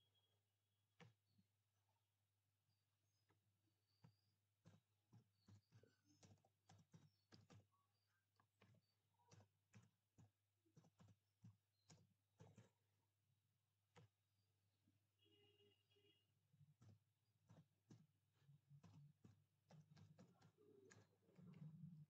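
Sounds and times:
typing on computer keyboard: 0:04.0 - 0:12.8, 0:16.6 - 0:22.0.

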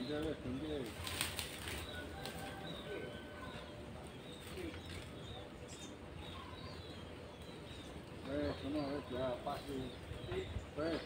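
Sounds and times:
small birds chirping: 0:00.0 - 0:11.0
noisy rustle: 0:00.7 - 0:02.9.

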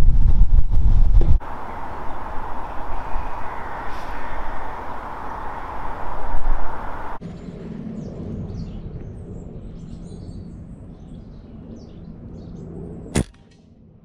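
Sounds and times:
birds chirping: 0:01.4 - 0:07.2
air rifle shot: 0:13.2 - 0:13.4.

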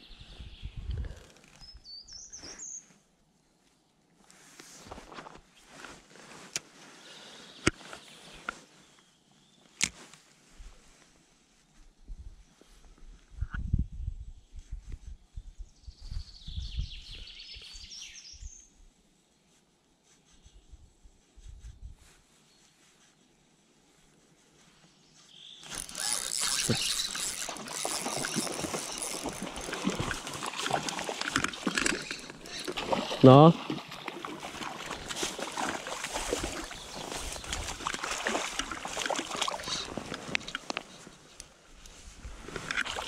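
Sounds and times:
songbird chirping and trilling: 0:01.6 - 0:02.9, 0:15.8 - 0:18.8
fish splashing in water: 0:25.6 - 0:40.7.

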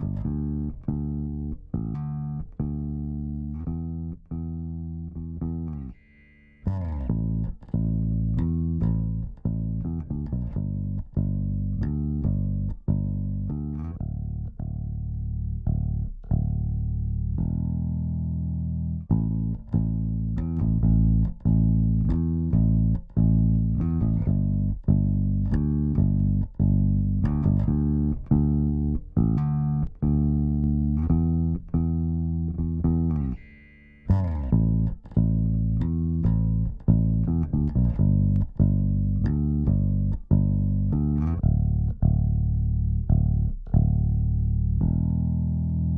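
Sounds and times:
plucked bass guitar notes: 0:00.0 - 0:45.9.

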